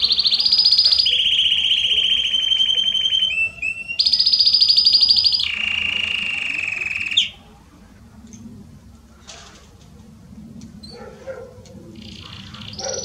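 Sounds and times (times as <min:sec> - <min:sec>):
canary trilling: 0:00.0 - 0:07.5, 0:12.0 - 0:13.0.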